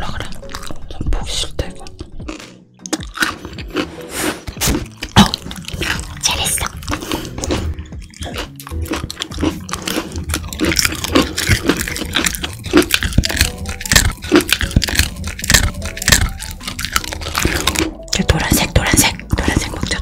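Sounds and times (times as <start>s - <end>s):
dog chewing crunchy treat: 4.7s - 20.0s.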